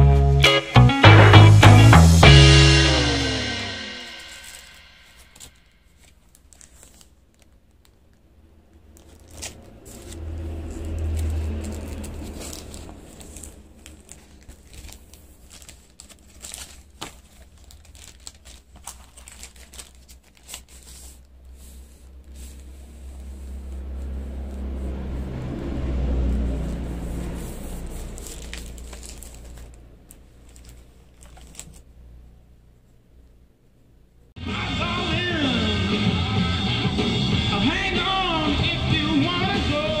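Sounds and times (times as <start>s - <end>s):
record sleeves rustling: 1.4s - 25.1s, 26.5s - 31.9s
low rumble: 22.5s - 29.3s.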